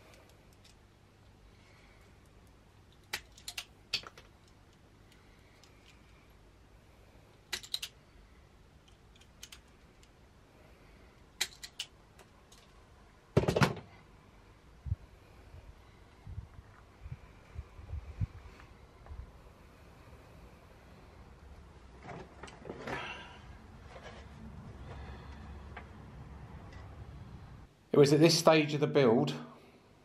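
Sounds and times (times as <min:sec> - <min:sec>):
wire stripper clicking and snipping: 0:02.9 - 0:05.8, 0:07.5 - 0:08.0, 0:08.9 - 0:10.1, 0:11.4 - 0:12.7.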